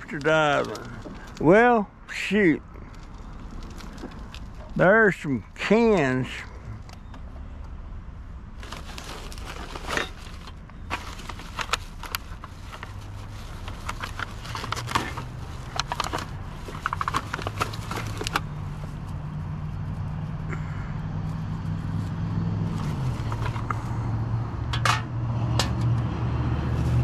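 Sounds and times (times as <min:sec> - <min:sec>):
cans and trash rattling: 0:08.6 - 0:18.4.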